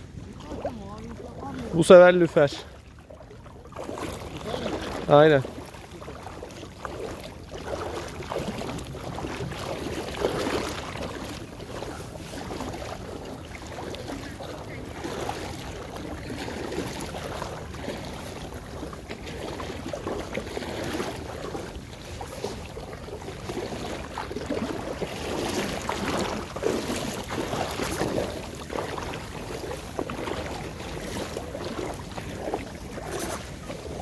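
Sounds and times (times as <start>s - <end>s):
sea water splashing: 0.0s - 34.0s.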